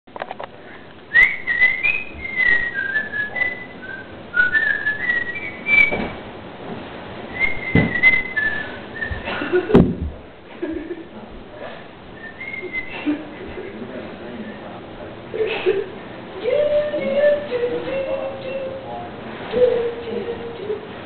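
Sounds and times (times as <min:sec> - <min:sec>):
person whistling a tune: 0:01.1 - 0:06.1, 0:07.3 - 0:09.3, 0:12.2 - 0:13.1
dull thumps: 0:04.6 - 0:06.3, 0:07.4 - 0:10.3.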